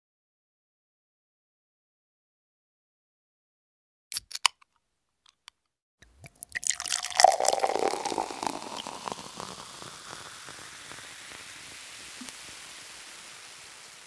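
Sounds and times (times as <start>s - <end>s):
sharp clicks: 4.1s - 4.7s
crackling fizzing hiss: 6.2s - 14.0s.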